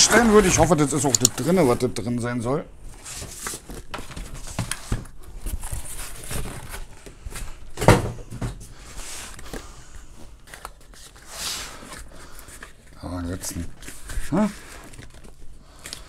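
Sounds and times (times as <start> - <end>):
cardboard rustling and scraping: 0.0 - 2.2, 2.8 - 15.4.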